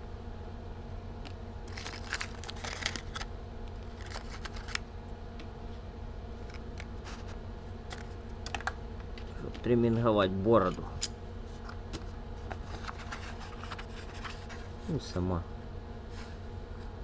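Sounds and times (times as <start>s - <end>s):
steady low hum: 0.0s - 17.0s
cardboard rustling and crinkling: 1.7s - 4.8s, 12.4s - 14.8s.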